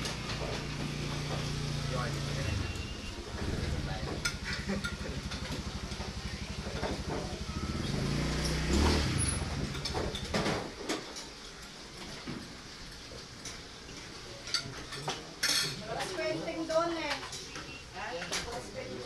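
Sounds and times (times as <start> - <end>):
vehicle engine passing by: 0.0 - 10.7.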